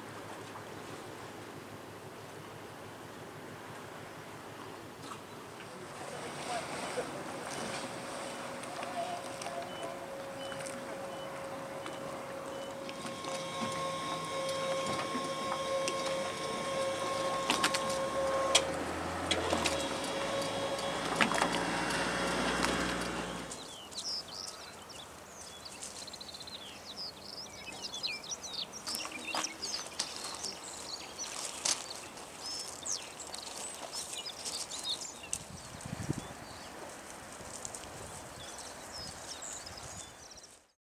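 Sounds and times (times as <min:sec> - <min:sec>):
boat machinery humming: 0:00.0 - 0:23.9
birds chirping: 0:05.3 - 0:36.8.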